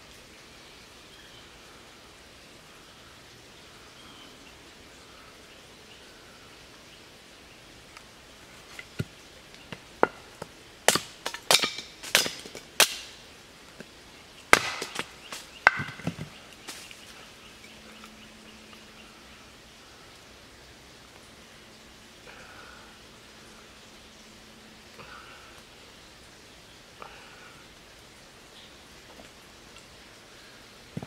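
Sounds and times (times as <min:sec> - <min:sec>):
hatchet splitting wood: 0:10.9 - 0:13.1, 0:14.5 - 0:16.3.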